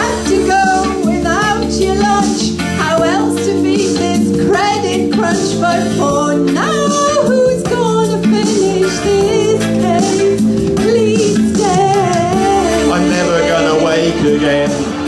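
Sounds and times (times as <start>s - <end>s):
woman singing into microphone: 0.0s - 14.2s
instrumental backing track: 0.0s - 15.0s.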